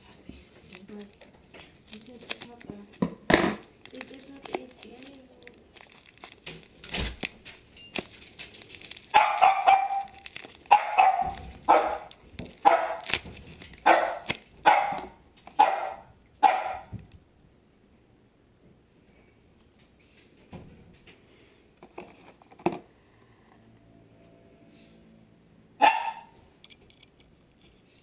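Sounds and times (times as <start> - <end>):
packing wrap rustling: 0.2 - 15.1
dog barking: 9.1 - 13.1, 13.8 - 17.0, 25.8 - 26.4.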